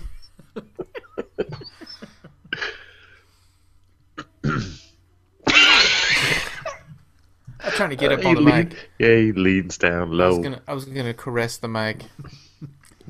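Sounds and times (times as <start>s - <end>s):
person laughing: 0.2s - 2.9s, 5.5s - 6.9s, 7.6s - 8.9s.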